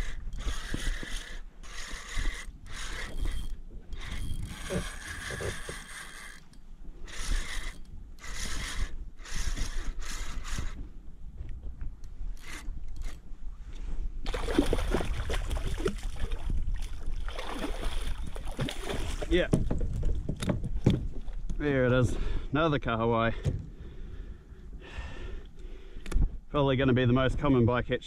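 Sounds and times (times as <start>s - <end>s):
fishing reel whirring: 0.0s - 10.8s, 12.3s - 13.3s.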